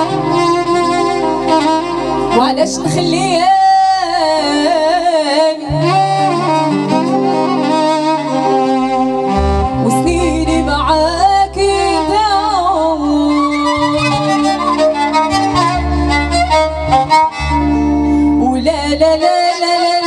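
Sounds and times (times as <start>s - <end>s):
bass line: 0.0s - 19.5s
violin: 0.0s - 20.0s
woman singing: 2.3s - 6.7s, 9.8s - 14.9s, 18.2s - 20.0s.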